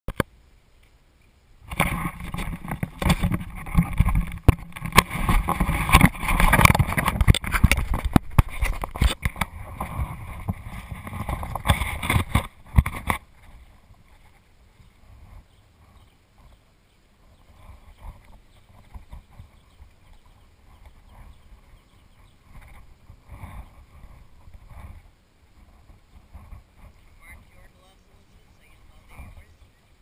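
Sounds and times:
rubbing and scraping on camera housing: 1.6 - 14.5, 17.3 - 27.0
sharp clicks and knocks: 1.7 - 13.2.

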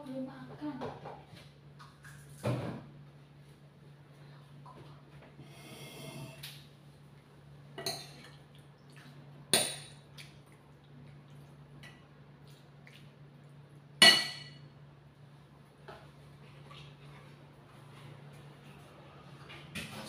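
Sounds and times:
dishes knocking and clinking: 14.0 - 14.6.

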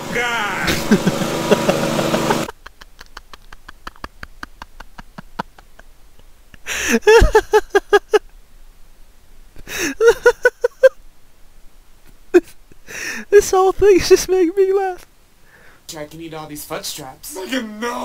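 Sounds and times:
man laughing hard: 0.2 - 5.9, 6.5 - 8.2, 9.6 - 11.0
quick gasping: 6.6 - 7.1, 12.8 - 13.3, 15.4 - 15.9.

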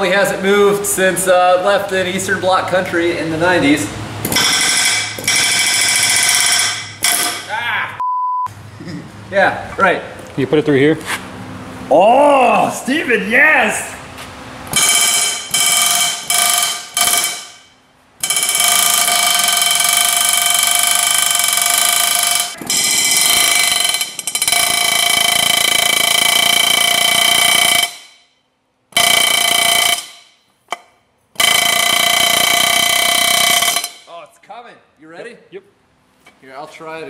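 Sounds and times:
air hammer hammering metal: 4.2 - 7.6, 14.7 - 28.3, 28.9 - 34.1.

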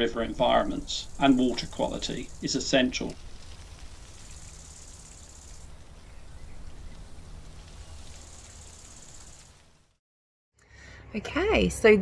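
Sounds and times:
low hum: 0.0 - 10.0
high hiss: 0.1 - 10.0.

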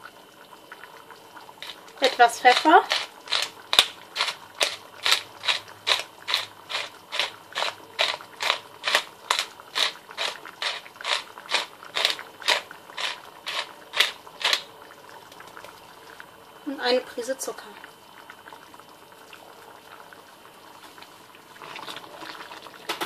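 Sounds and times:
pepper mill grinding: 1.6 - 14.7.

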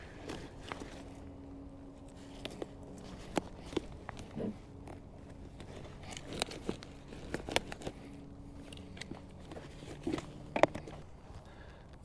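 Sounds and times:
clicks knocks and rustles of handling: 2.2 - 11.1.

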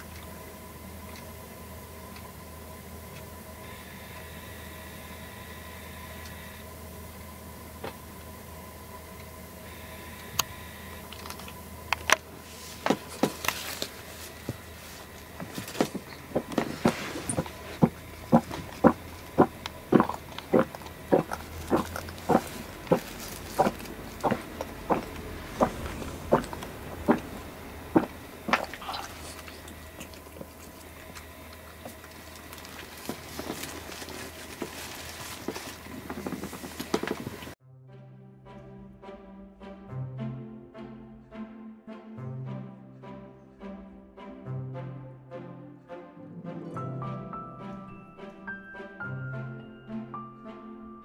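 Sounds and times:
pet pad rustling: 12.4 - 19.0, 20.0 - 27.4, 31.9 - 37.4
cat heaving and retching: 16.2 - 30.6.

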